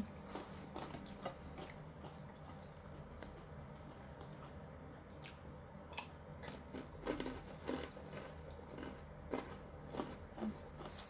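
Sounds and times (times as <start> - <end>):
person chewing and biting: 5.2 - 11.0.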